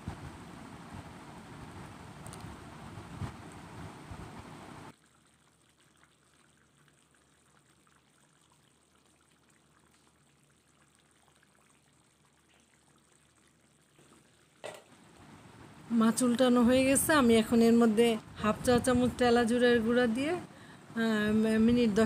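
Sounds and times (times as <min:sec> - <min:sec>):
curry bubbling in a pan: 0:04.9 - 0:15.1.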